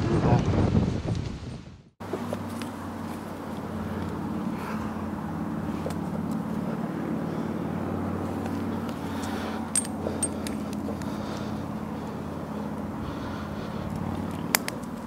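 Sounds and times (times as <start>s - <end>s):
rope rustling: 2.0s - 7.6s
carabiner metallic clicks: 9.2s - 10.8s, 14.3s - 15.0s.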